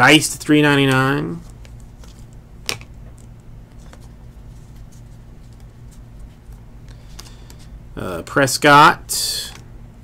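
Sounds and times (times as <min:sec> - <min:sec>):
cards flipped by hand: 0:00.8 - 0:07.7.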